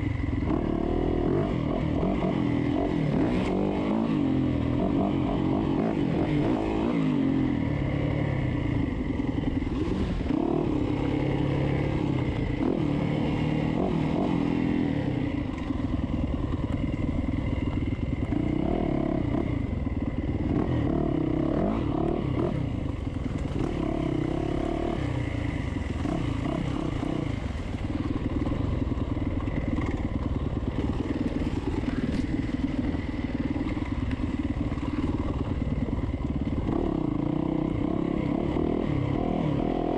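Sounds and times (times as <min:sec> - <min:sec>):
dirt bike engine revving: 0:00.5 - 0:08.4, 0:09.5 - 0:15.3, 0:20.4 - 0:22.7, 0:23.5 - 0:28.6.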